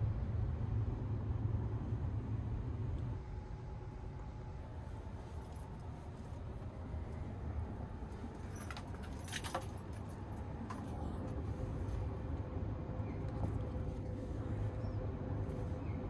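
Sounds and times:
light clicks and rattles: 8.3s - 11.6s.

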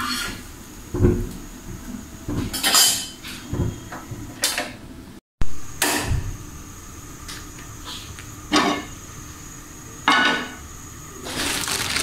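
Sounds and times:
scraping rustle: 11.3s - 12.0s.

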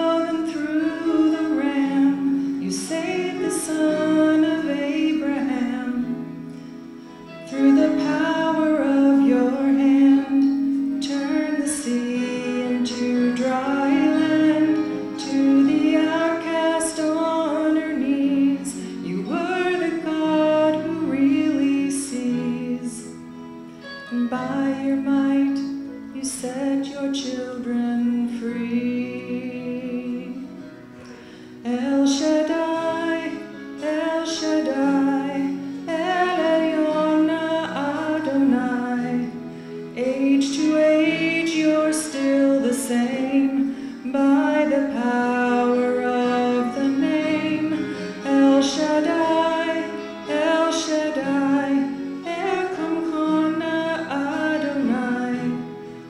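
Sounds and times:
woman singing a slow song: 0.0s - 6.5s, 7.4s - 23.4s, 24.0s - 30.7s, 31.6s - 55.8s.

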